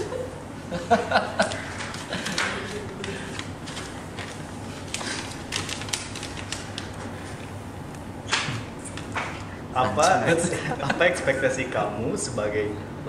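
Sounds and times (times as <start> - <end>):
paper rustling and crinkling: 1.5 - 7.5.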